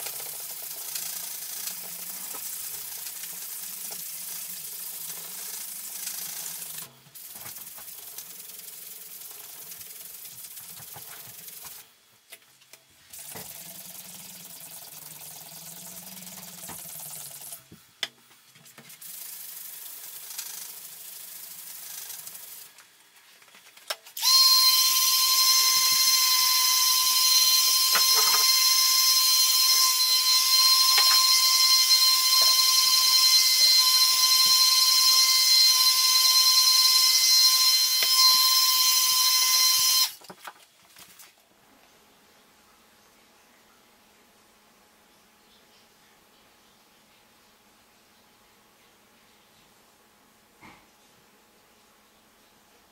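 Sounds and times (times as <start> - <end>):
loud high whine with hiss: 24.3 - 40.2.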